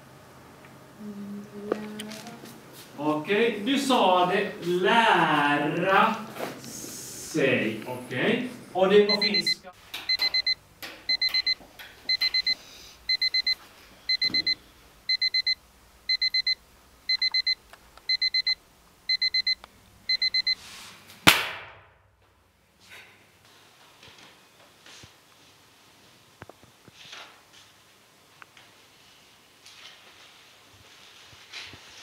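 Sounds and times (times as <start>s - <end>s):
digital alarm beeping: 9.1s - 20.6s
sharp bang with rush: 21.2s - 22.0s.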